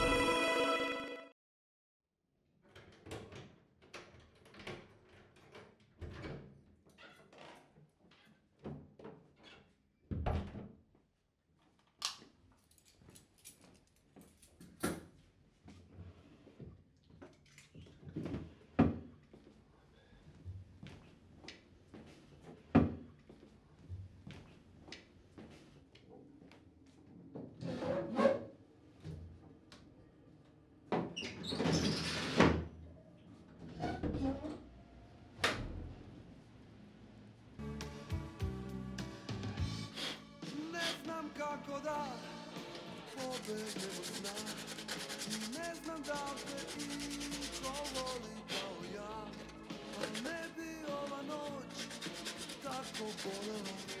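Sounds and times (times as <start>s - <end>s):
paper ripping: 43.1s - 48.7s, 51.4s - 54.0s.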